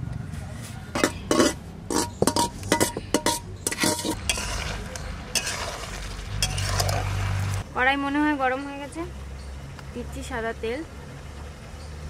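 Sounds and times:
metal spatula scraping a pan: 1.0 - 7.5
food sizzling: 1.0 - 7.6.

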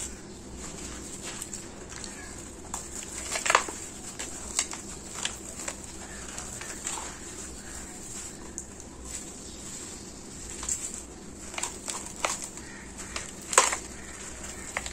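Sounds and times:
sand-cement clumps crunching: 0.0 - 14.9
grit falling onto wet cement: 10.5 - 14.9.

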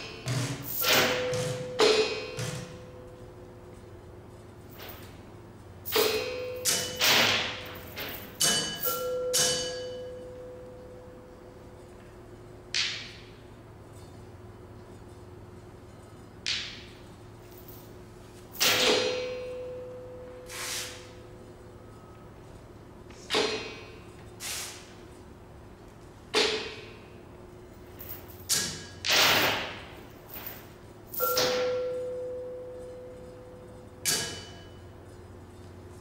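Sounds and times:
percussion strikes and swishes: 0.0 - 3.0, 5.9 - 9.9
ringing percussion tone: 0.8 - 3.4, 8.5 - 11.4, 19.1 - 20.5, 31.1 - 35.2.

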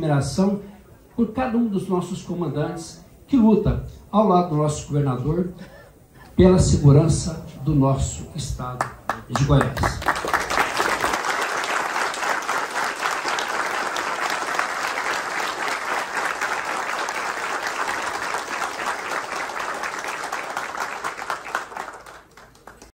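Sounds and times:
large crowd applauding: 8.8 - 23.0.

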